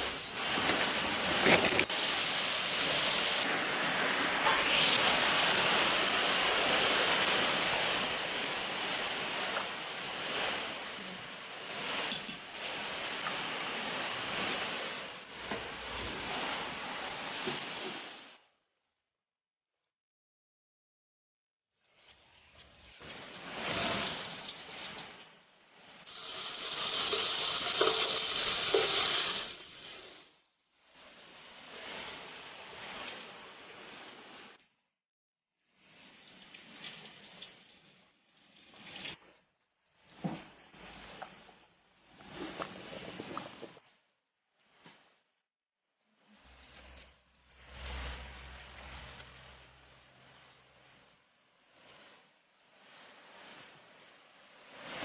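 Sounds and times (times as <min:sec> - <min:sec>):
spices sizzling in hot oil: 0:26.1 - 0:30.0
liquid pouring and sloshing into pot: 0:26.1 - 0:30.1
rice stirred with spatula: 0:26.1 - 0:30.3.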